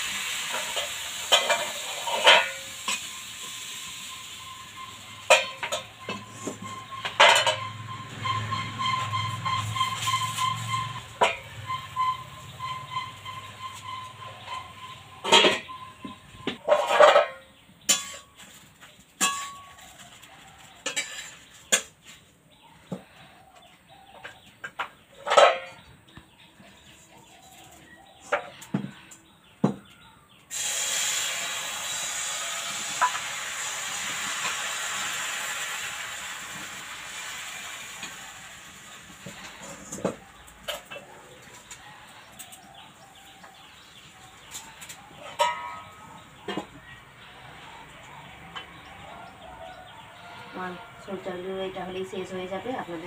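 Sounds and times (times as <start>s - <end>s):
batter sizzling in hot pan: 0.0s - 5.9s, 30.5s - 39.8s
steel utensils clinking on pan: 0.2s - 22.1s, 24.2s - 25.9s, 39.0s - 43.6s, 44.4s - 46.9s.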